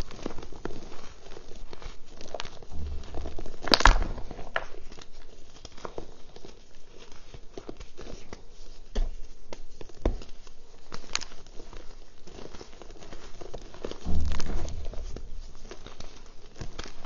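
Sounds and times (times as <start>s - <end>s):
chalk crunching and crackling: 0.0s - 17.0s
dull thump: 14.0s - 16.2s.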